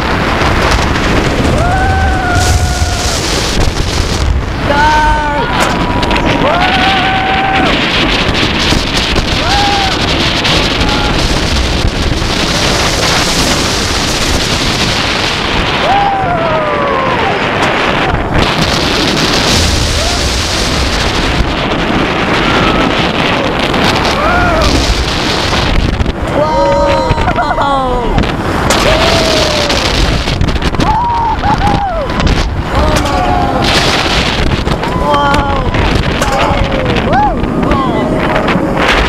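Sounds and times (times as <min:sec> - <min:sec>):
wind rushing over microphone: 0:00.0 - 0:39.0
riders yelling and screaming: 0:01.3 - 0:03.4, 0:04.6 - 0:08.4, 0:09.3 - 0:11.6, 0:15.7 - 0:18.3, 0:22.0 - 0:25.0, 0:26.2 - 0:38.6.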